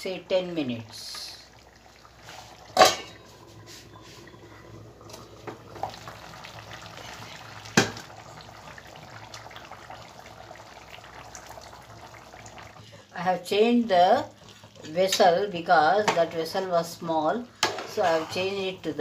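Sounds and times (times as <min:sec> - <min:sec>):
curry bubbling in a pot: 0:00.1 - 0:16.4
steel lid clanking: 0:02.7 - 0:03.2.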